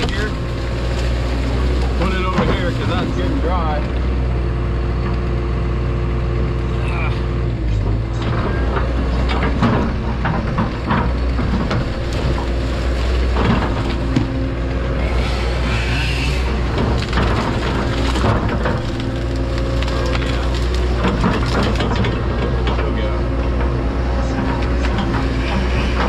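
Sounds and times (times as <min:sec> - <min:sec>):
wood cracking and snapping: 0:00.0 - 0:03.0, 0:08.8 - 0:26.0
excavator engine running: 0:00.0 - 0:26.0.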